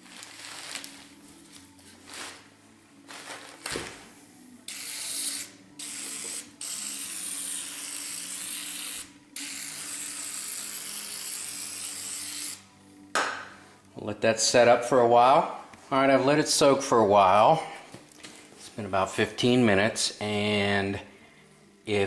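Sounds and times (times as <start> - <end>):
aerosol can spraying: 4.7 - 9.1.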